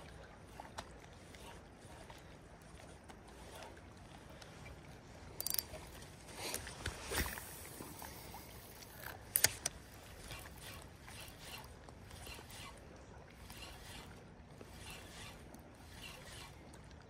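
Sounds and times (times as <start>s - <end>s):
faint reel ticking: 0.0s - 6.1s, 7.3s - 17.0s
fishing reel clicks and knocks: 5.4s - 5.8s, 8.8s - 12.8s.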